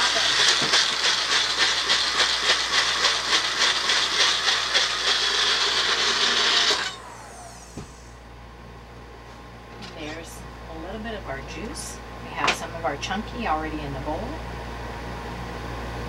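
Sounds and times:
blender motor running: 0.0 - 8.1
motor spinning down whine: 0.0 - 8.3.

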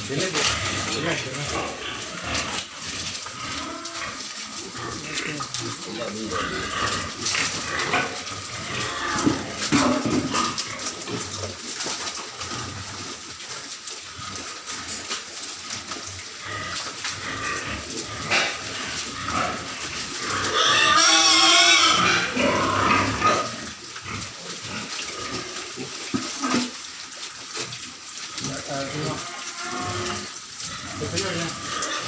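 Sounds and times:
piglets grunting: 0.0 - 11.6, 16.4 - 26.8, 28.4 - 32.0
piglet squealing: 20.6 - 22.4.

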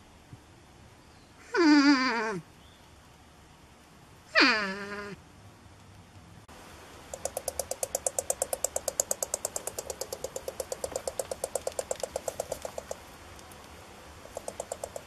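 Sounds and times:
porcupine chattering teeth: 7.1 - 13.0, 14.2 - 15.0.

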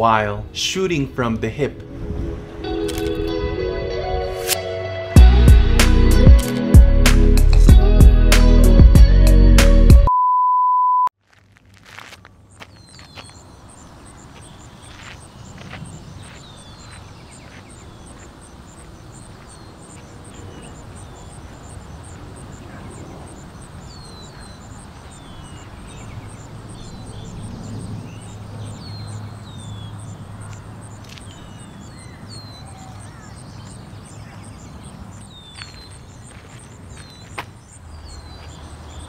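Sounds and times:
low traffic hum: 11.3 - 39.0
small birds chirping: 11.8 - 39.0
vehicle passing close by: 25.7 - 31.0.

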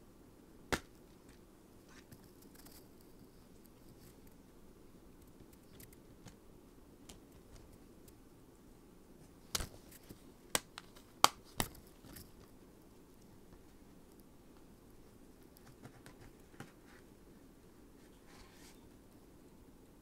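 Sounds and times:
faint room noise: 0.0 - 20.0.

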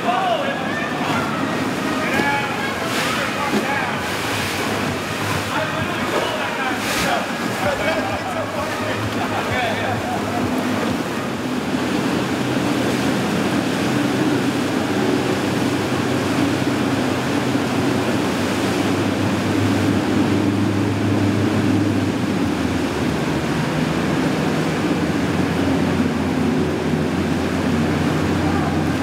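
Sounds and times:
boat engines droning: 0.0 - 29.0
choppy water rushing: 0.0 - 29.0.

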